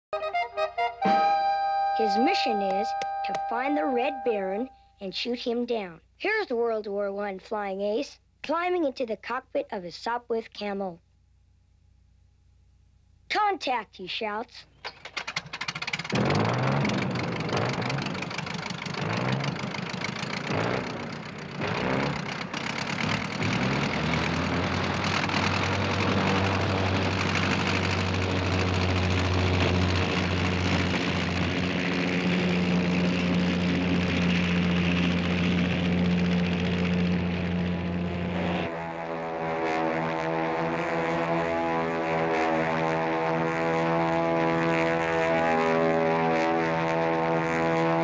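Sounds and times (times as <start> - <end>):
propeller plane engine starting: 14.7 - 48.0.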